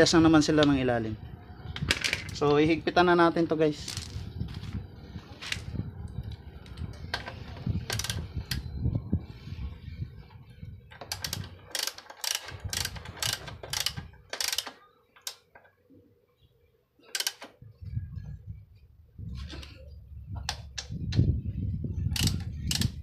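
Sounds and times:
ratchet wrench clicking: 7.9 - 8.6, 11.0 - 15.4, 17.1 - 17.5, 22.1 - 23.0.

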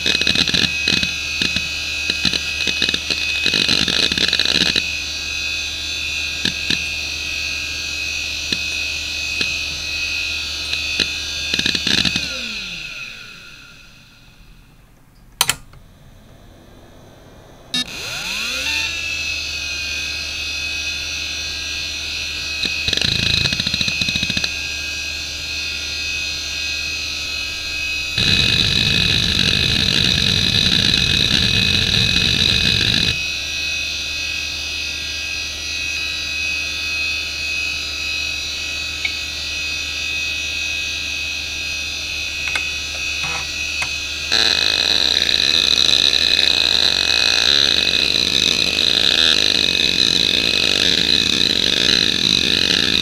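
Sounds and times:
hard drive spinning hum and whine: 0.0 - 53.0
hard drive heads seeking: 42.4 - 53.0.

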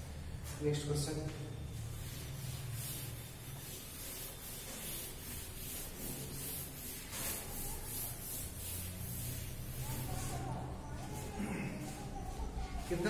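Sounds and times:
duster wiping blackboard: 1.7 - 13.0.

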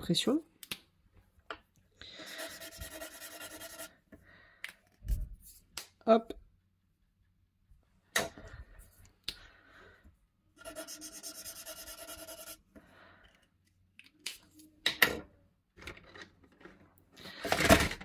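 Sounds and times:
marker scribbling on paper: 2.2 - 3.9, 10.6 - 12.6.

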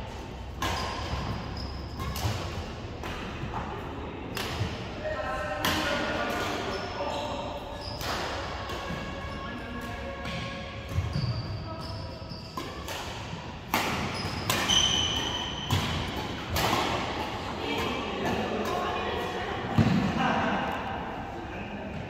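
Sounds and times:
racket hitting shuttlecock: 0.4 - 3.7, 4.3 - 4.8, 5.6 - 6.7, 8.0 - 11.2, 12.5 - 20.2
shoe squeaks on wooden court: 0.6 - 2.3, 6.3 - 13.0, 13.9 - 16.4.

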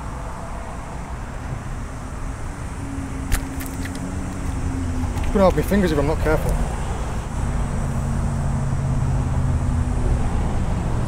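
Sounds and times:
steady hum: 0.0 - 10.9
traffic rumble: 0.0 - 11.0
sharp click: 3.3 - 4.5.

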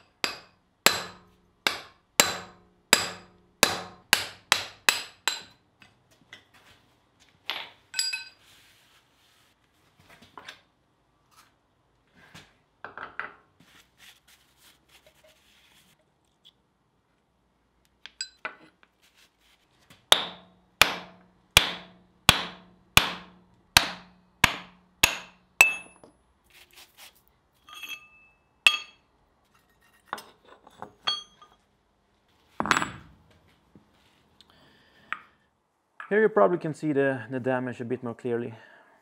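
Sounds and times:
hammer striking steel: 0.2 - 5.6, 20.1 - 26.0, 27.7 - 29.0.

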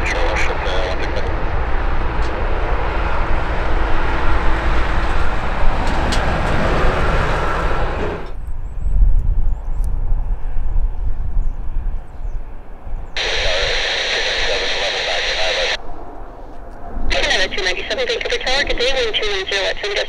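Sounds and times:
jet engines rushing: 13.2 - 15.8, 17.1 - 20.0.

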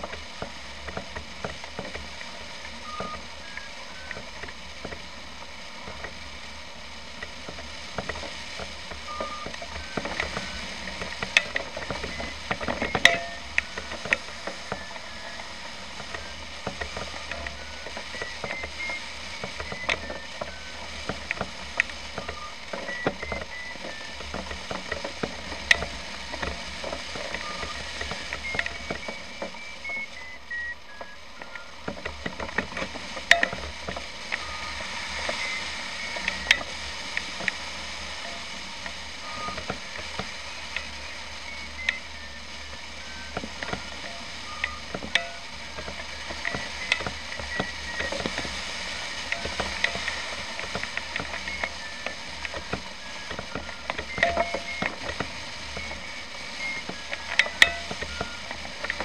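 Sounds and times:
steady low hum: 0.0 - 59.0
short electronic beeps: 2.8 - 4.3, 9.0 - 31.8, 33.2 - 59.0
sharp clicks and ticks: 16.0 - 37.6.

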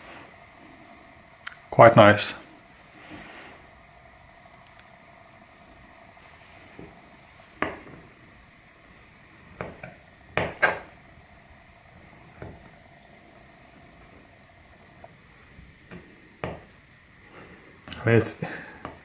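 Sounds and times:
knife tapping cutting board: 9.6 - 10.8, 15.9 - 16.7.

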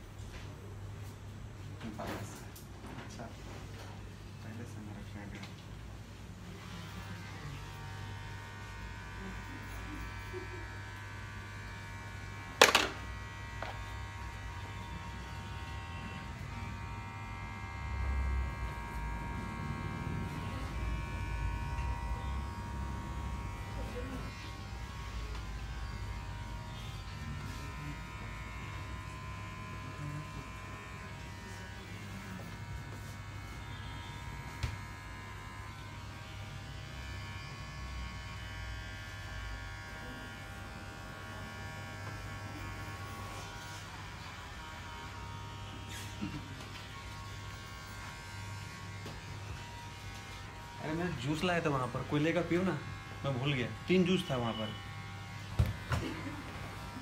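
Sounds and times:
small motor buzzing: 6.6 - 51.2.

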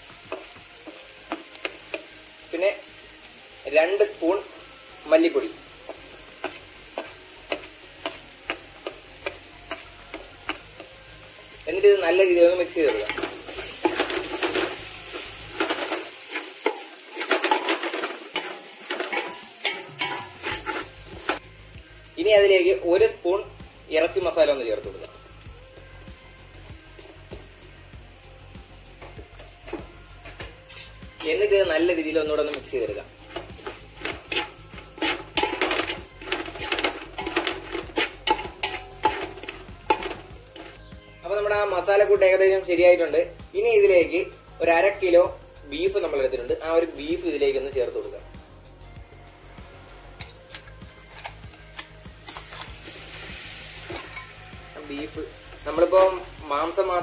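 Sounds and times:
frying sizzle: 0.0 - 57.0
spatula scraping metal pan: 12.9 - 21.4, 33.3 - 40.8
spoon clinking against pot: 33.3 - 40.2
spoon scraping metal pot: 33.3 - 40.8, 50.2 - 52.8.

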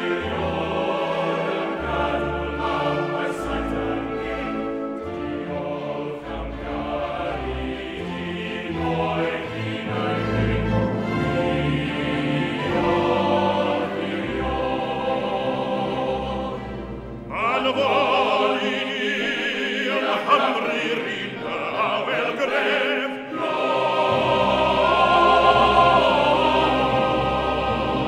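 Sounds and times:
choir singing: 0.0 - 28.0
orchestral accompaniment: 0.0 - 28.0.

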